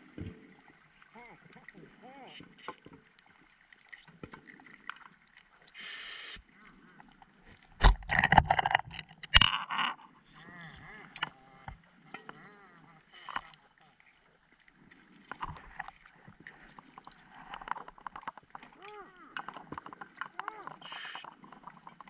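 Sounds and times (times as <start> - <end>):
clicks and gurgles: 0.1 - 22.0
gas hissing underwater: 5.8 - 6.4, 20.8 - 21.3.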